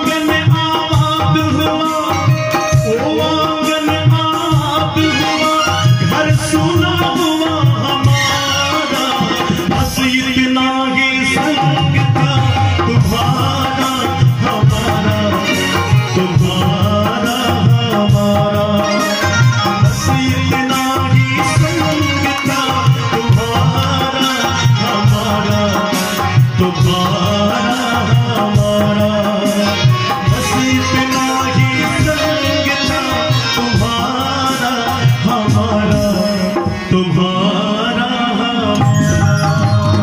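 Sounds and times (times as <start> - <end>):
harmonium: 0.0 - 40.0
keyed banjo melody: 0.0 - 40.0
hand drum beat: 11.4 - 36.4.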